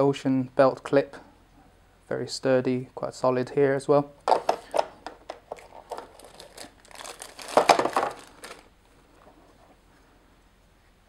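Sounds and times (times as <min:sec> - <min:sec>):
plastic packaging crinkling: 0:04.3 - 0:08.8.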